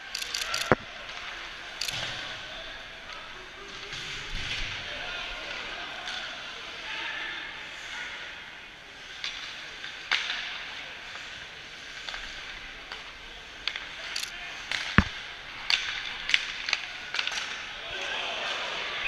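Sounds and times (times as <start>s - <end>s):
hockey sticks and puck clacking: 9.1s - 17.8s.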